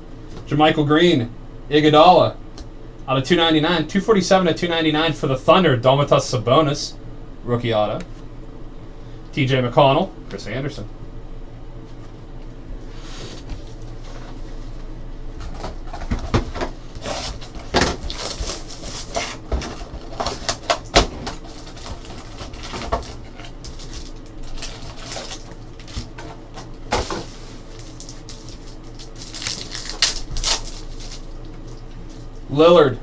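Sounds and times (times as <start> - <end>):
foil packs crinkling and rustling: 15.4 - 32.4.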